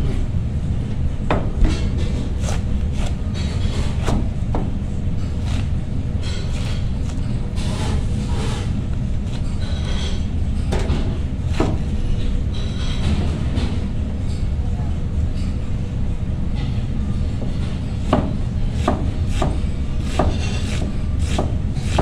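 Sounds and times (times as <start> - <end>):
knife slicing through cabbage: 2.0 - 4.4, 5.3 - 9.6, 18.8 - 22.0.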